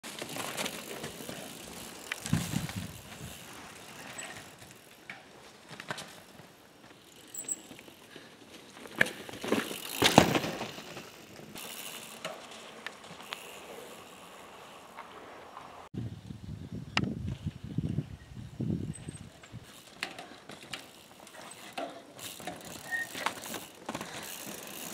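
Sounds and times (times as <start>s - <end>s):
tyres crunching over dirt and leaves: 0.0s - 15.9s
bike knocks and thumps: 8.8s - 12.4s.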